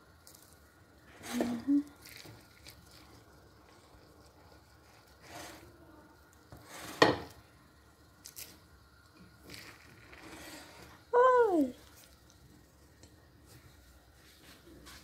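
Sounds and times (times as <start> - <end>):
wooden spatula scraping rice: 4.5 - 5.8, 6.5 - 7.4, 9.4 - 11.1.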